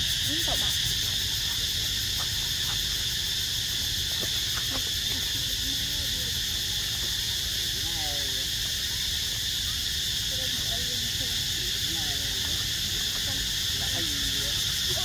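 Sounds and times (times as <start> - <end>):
pulsing insect chorus: 0.0 - 15.0.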